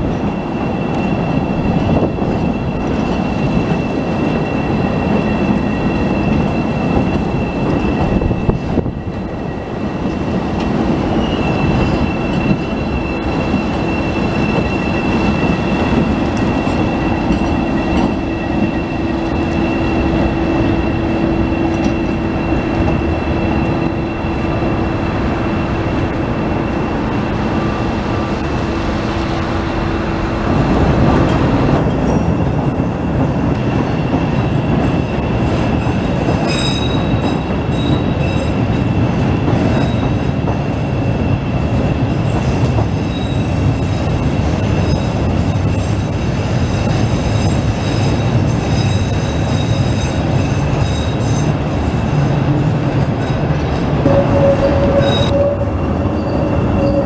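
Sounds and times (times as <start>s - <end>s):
train wheels rumbling on rails: 0.0s - 57.0s
wheel squeal: 11.0s - 24.6s, 34.8s - 38.6s, 42.2s - 52.2s, 54.1s - 57.0s.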